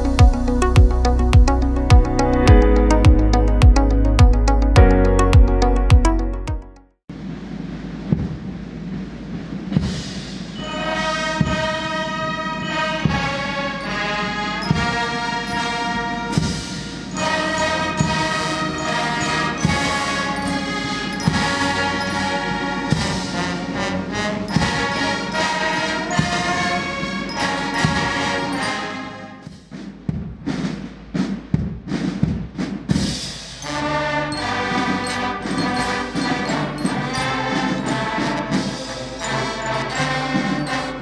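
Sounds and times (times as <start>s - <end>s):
steady drum strikes: 0.0s - 10.6s, 11.3s - 13.5s, 14.6s - 15.2s, 16.3s - 28.6s, 29.4s - 39.4s
brass band playing slow piece: 10.6s - 29.5s, 33.6s - 41.0s.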